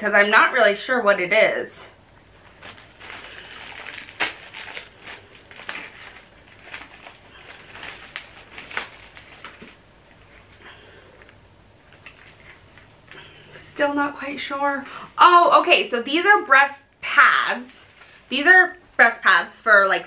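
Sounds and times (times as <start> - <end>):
plastic packaging crinkling: 2.3 - 13.6.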